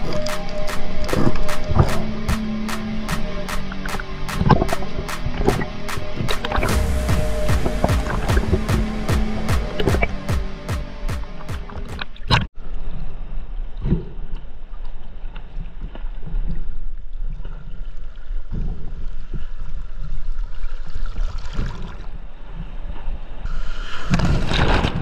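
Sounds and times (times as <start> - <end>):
music: 0.0 - 12.2
low rumbling noise: 0.0 - 12.5.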